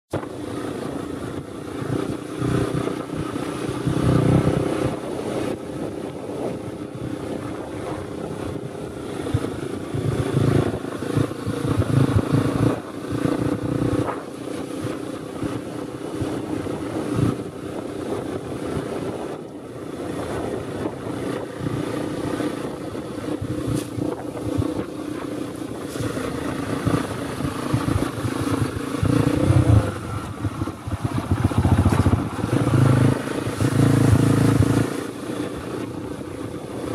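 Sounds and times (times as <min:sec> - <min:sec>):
dirt bike engine revving: 0:09.1 - 0:15.6, 0:25.8 - 0:35.6.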